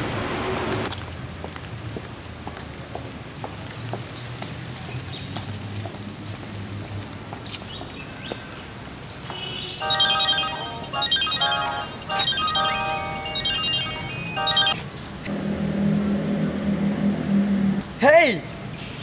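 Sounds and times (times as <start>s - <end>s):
phone ringtone melody: 9.8s - 14.8s.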